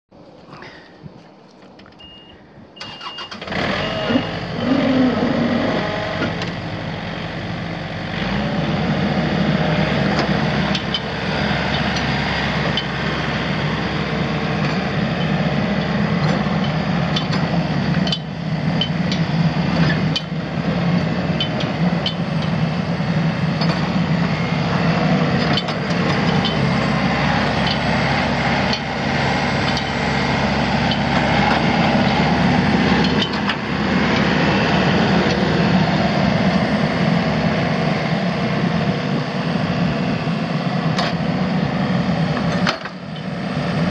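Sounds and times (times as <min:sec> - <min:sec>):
short warning beep: 0:02.0 - 0:04.4
diesel mower engine running: 0:02.8 - 0:43.9.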